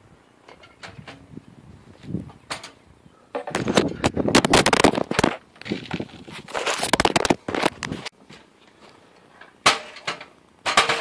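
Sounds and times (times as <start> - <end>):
camera handling rustle: 3.5 - 8.1.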